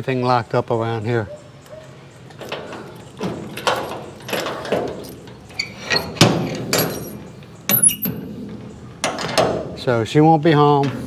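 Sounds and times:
sharp metallic clinks: 1.6s - 8.2s
irregular knocks and clatters: 1.8s - 9.7s.

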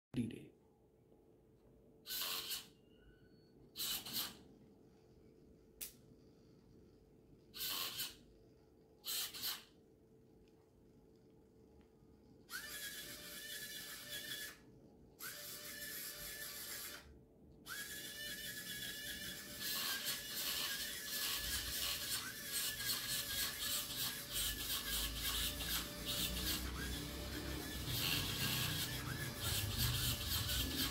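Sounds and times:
small electric motors whirring: 2.0s - 2.8s, 3.7s - 4.5s, 7.5s - 8.3s, 9.0s - 9.8s, 12.4s - 30.9s
faint steady hum: 4.5s - 7.6s, 8.2s - 9.1s, 9.7s - 24.2s.

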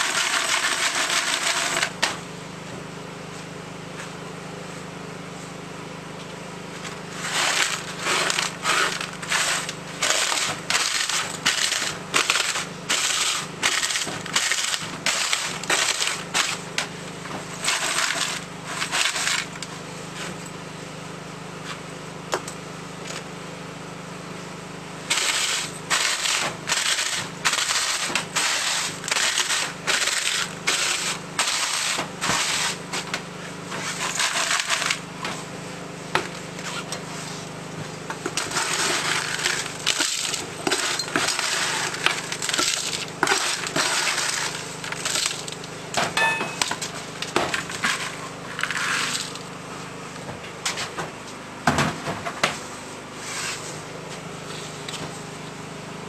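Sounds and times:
bone crunching and grating in bowl: 7.2s - 16.8s.

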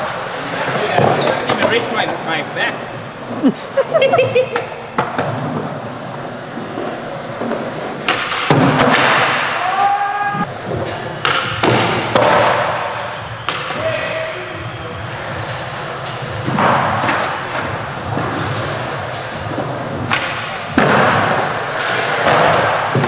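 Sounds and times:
skateboard wheels rolling on concrete: 0.0s - 23.0s
background music: 9.6s - 23.0s.

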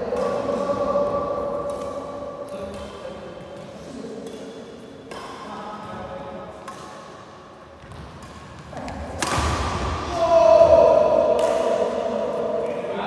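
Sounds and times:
rackets striking shuttlecock: 6.6s - 7.2s, 7.8s - 10.0s, 11.1s - 12.1s
loud racket smash: 9.2s - 10.1s.

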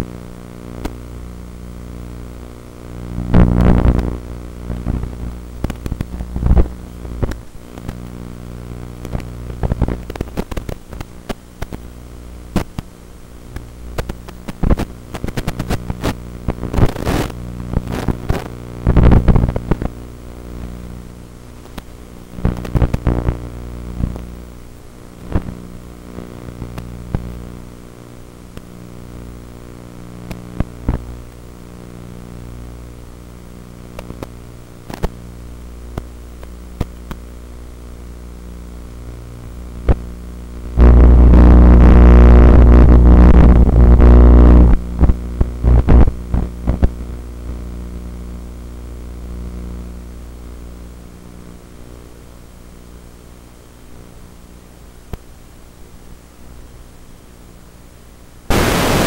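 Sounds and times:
sharp crackles and pops: 0.5s - 49.6s, 58.5s - 59.0s.

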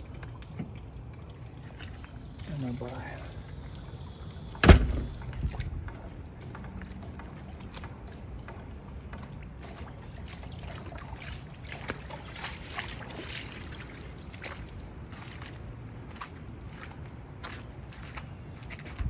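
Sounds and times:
faint clicks and ticks: 0.0s - 9.4s
floodwater rushing: 0.0s - 18.8s.

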